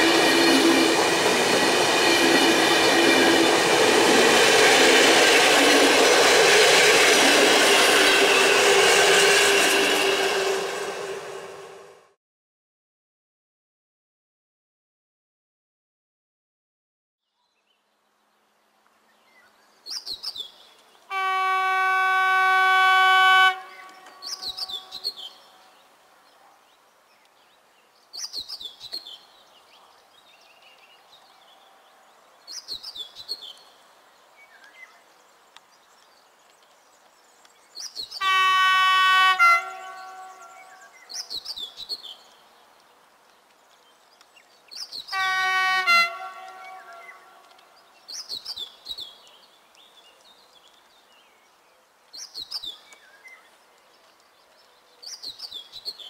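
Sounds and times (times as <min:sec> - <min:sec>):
locomotive horn blasts: 0:06.2 - 0:11.9, 0:21.1 - 0:24.4, 0:38.2 - 0:40.7, 0:45.1 - 0:47.4
songbird call: 0:21.2 - 0:25.8, 0:37.7 - 0:42.4, 0:44.3 - 0:50.8.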